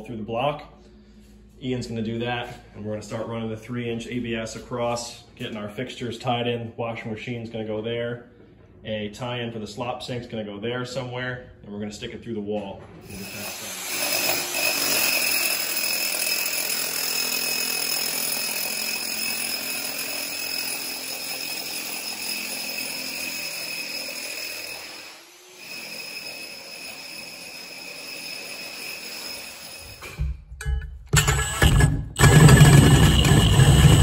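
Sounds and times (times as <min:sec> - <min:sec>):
electric drill grinding concrete: 0:13.1 - 0:30.2, 0:31.2 - 0:34.0.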